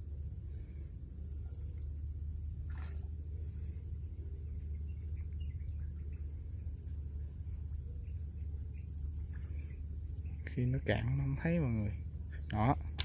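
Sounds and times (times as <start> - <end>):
faint bird chirps: 0.0 - 12.8
high insect drone: 0.0 - 13.0
low steady rumble: 0.0 - 13.0.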